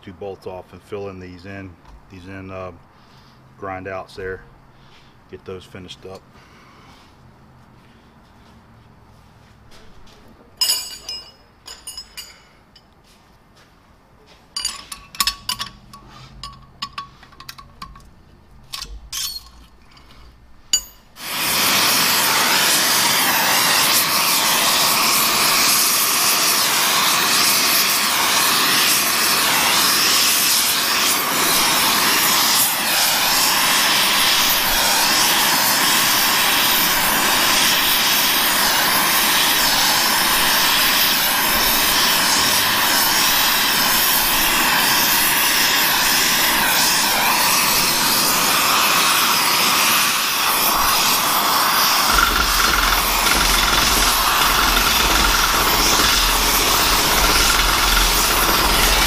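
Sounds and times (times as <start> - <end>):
metal tools clinking on bench: 10.6 - 13.0, 14.5 - 18.1, 18.8 - 21.1
torch hissing: 21.2 - 59.0
torch lighting pop: 50.4 - 59.0.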